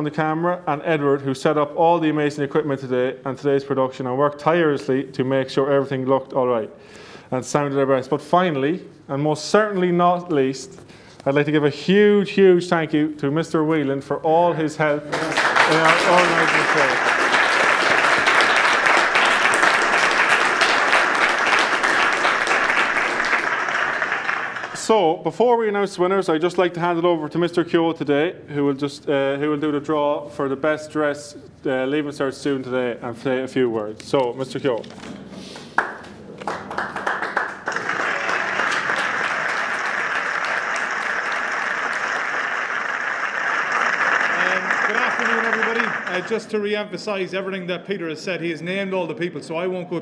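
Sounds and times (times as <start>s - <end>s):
audience applauding: 15.1s - 24.9s, 35.8s - 46.7s.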